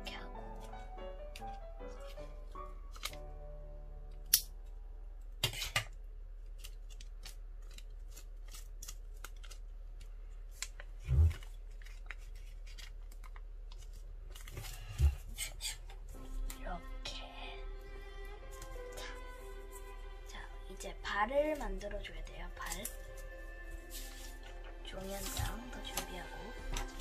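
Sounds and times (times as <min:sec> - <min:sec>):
paper rustling: 0:01.3 - 0:03.2, 0:06.4 - 0:15.8, 0:21.5 - 0:27.0
scissors cutting paper: 0:05.4 - 0:05.9, 0:14.6 - 0:16.6.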